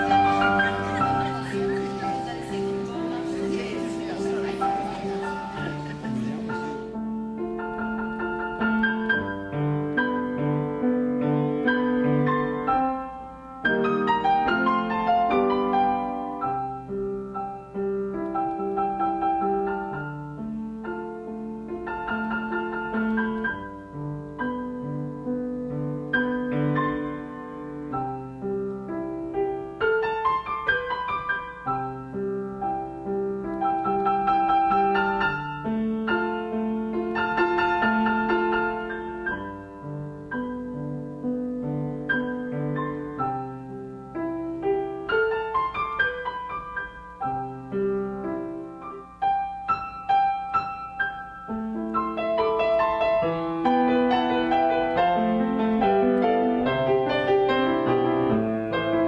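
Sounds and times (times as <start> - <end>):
piano music: 0.0 - 59.0.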